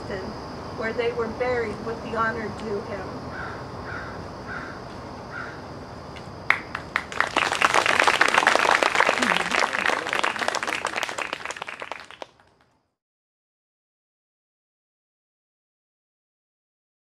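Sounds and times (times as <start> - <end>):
audience applauding: 6.5 - 12.7.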